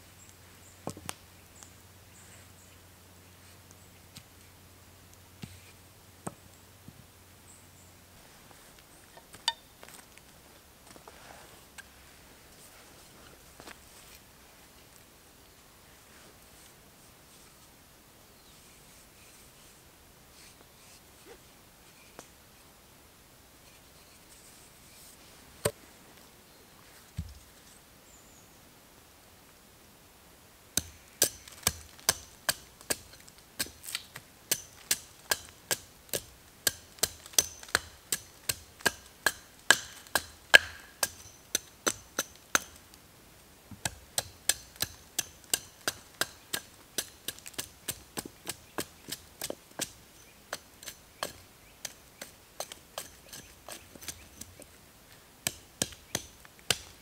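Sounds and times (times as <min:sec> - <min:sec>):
hatchet chopping log: 0:30.8 - 0:42.8, 0:43.7 - 0:54.6, 0:55.4 - 0:57.0.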